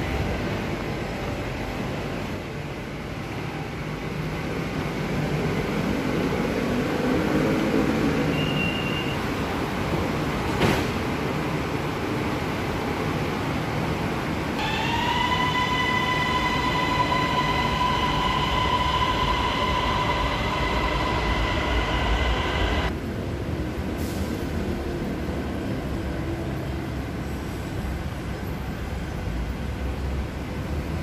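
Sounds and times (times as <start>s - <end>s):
train low rumble: 0.0s - 8.3s, 9.2s - 31.0s
electric train high-pitched whine: 14.6s - 23.0s.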